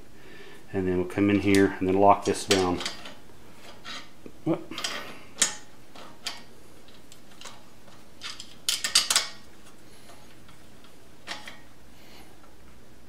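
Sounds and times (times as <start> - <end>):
metal-on-metal clicks: 1.3 - 4.1, 4.8 - 11.7.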